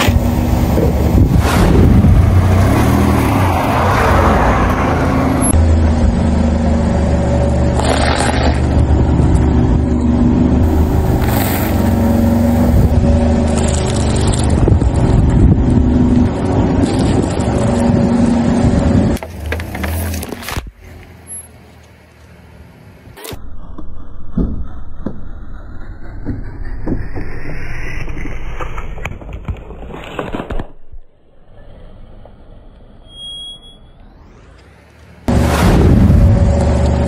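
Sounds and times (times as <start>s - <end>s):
car engine running: 4.9s - 20.6s
crackling bursts: 7.7s - 9.0s
tyres crushing objects: 7.8s - 8.8s.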